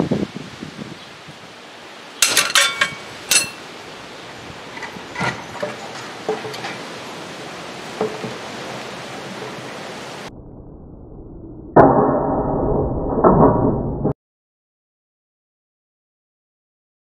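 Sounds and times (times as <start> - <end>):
metal bars clanging: 2.2 - 3.7.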